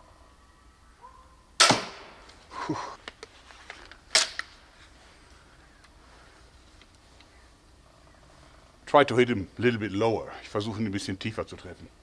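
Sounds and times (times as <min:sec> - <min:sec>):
crossbow firing snap: 0:01.6 - 0:02.4.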